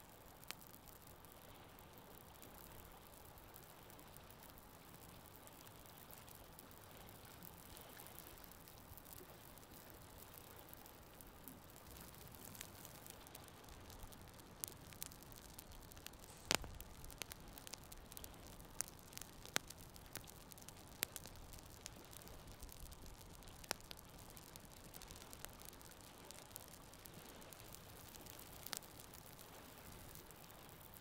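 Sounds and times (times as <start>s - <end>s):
campfire crackling: 0.0s - 31.0s
faint steady hiss: 0.0s - 31.0s
sharp pops of burning wood: 11.6s - 31.0s.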